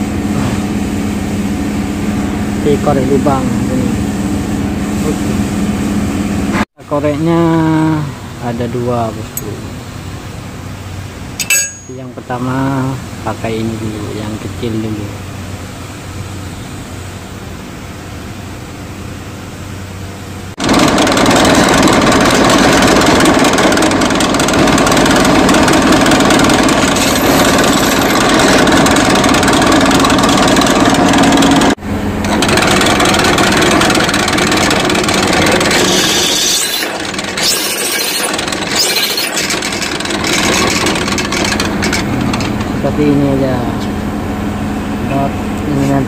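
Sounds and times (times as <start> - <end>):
drill press drilling steel: 11.4 - 12.0, 20.6 - 42.6.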